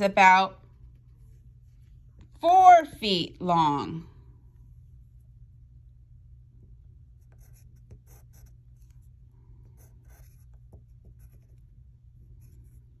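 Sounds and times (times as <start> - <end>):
low hum: 0.0 - 13.0
pencil writing on paper: 7.2 - 9.0, 9.7 - 11.7, 12.4 - 13.0.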